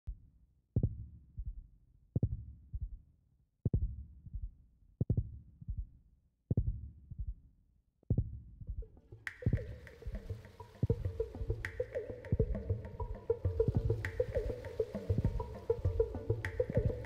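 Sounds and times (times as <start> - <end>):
slow heartbeat: 0.8 - 1.6, 3.7 - 5.9, 6.5 - 7.4, 8.1 - 11.7.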